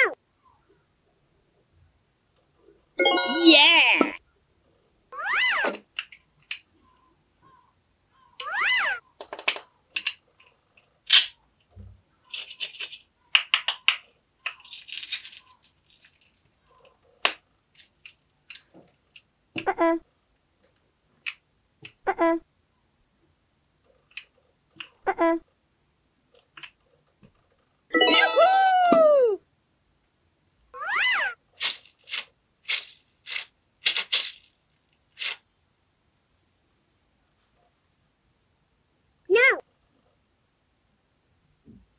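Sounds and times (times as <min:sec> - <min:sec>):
hook-and-loop ripping: 0:31.6 - 0:35.4.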